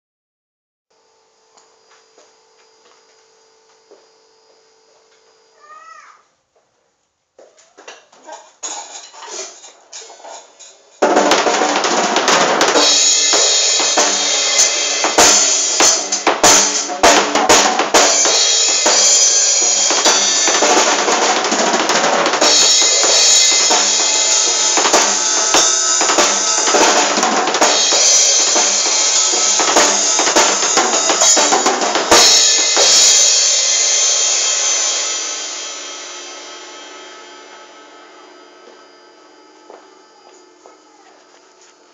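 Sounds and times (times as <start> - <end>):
drum kit groove: 8.6 - 38.8
loud cymbal hit ringing: 11.0 - 40.2.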